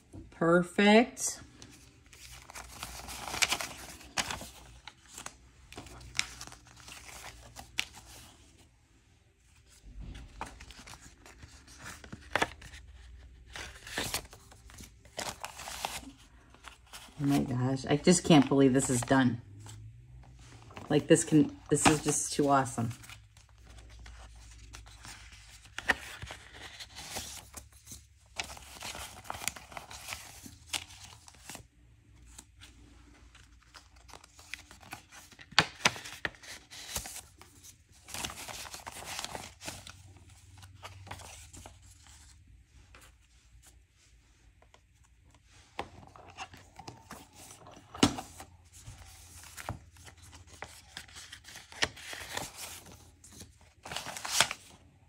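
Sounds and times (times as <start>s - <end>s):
banknotes rustling and flicking: 20.4s - 31.6s.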